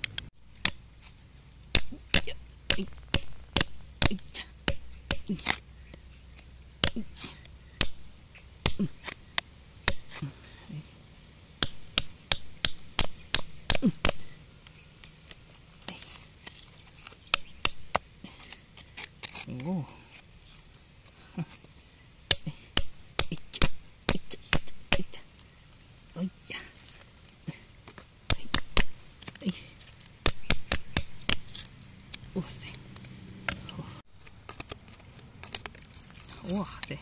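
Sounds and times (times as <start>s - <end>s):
metal chisel chipping rock: 1.7s - 5.6s, 6.8s - 8.0s, 11.6s - 14.4s, 15.9s - 19.7s, 27.9s - 29.4s, 30.2s - 32.6s.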